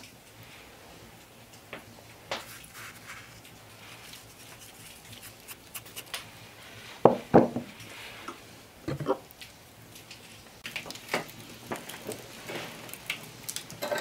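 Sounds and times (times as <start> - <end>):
salt sprinkling rustle: 2.4 - 7.0, 9.3 - 13.8
dishes knocking on wooden table: 7.1 - 7.7.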